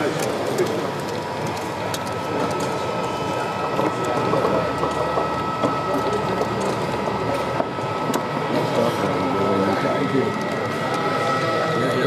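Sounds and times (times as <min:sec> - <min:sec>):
wheels clicking on track: 0:00.0 - 0:09.1.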